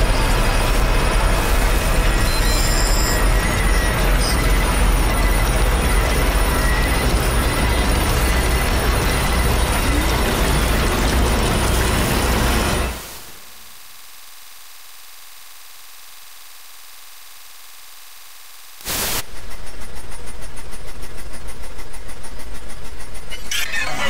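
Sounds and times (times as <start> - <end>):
electronic noise wall: 0.0 - 24.0
loud pulsing noise: 0.0 - 24.0
steady high hiss: 13.3 - 19.2.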